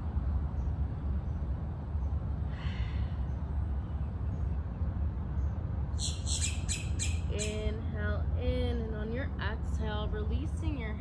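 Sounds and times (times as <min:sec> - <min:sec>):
steady low rumble: 0:00.0 - 0:11.0
bird giving harsh notes: 0:06.0 - 0:07.7.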